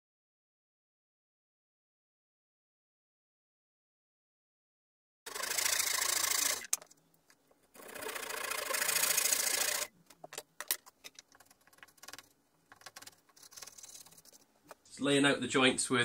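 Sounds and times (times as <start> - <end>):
hand saw cutting timber: 5.3 - 6.7, 7.8 - 9.9.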